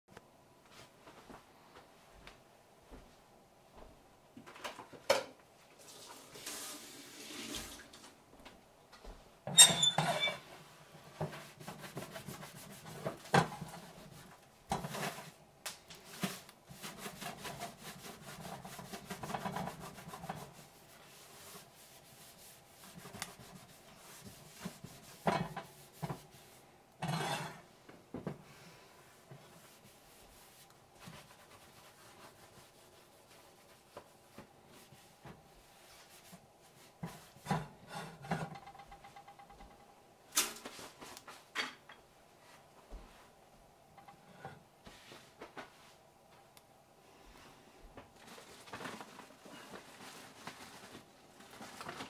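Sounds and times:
cloth rubbing on skillet: 5.8s - 7.8s, 9.8s - 15.4s, 16.0s - 27.7s, 29.0s - 38.3s, 44.2s - 46.1s, 48.2s - 52.0s.

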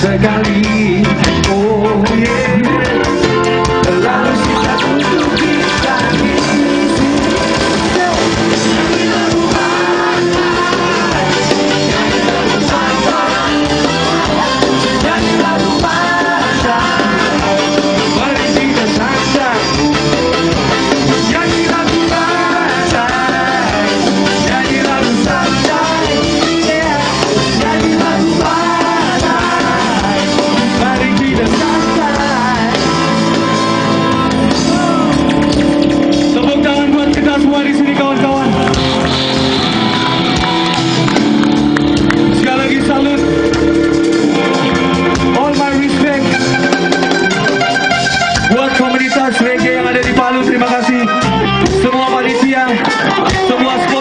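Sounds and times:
person singing: 0.0s - 35.5s, 48.5s - 54.0s
electric guitars: 0.0s - 54.0s
live band playing loudly: 0.0s - 54.0s.

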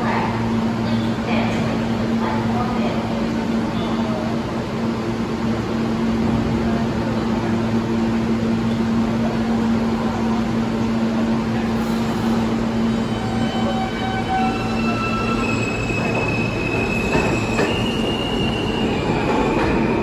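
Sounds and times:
subway train rumbling: 0.0s - 20.0s
train wheel squeal: 12.9s - 20.0s.

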